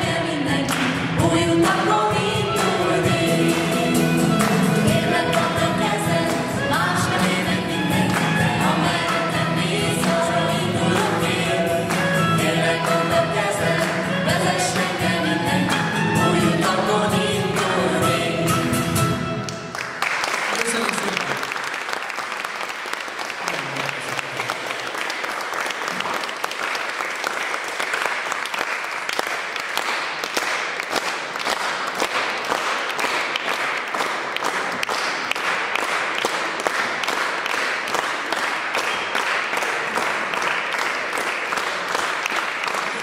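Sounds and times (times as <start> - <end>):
audience applauding: 19.4 - 43.0.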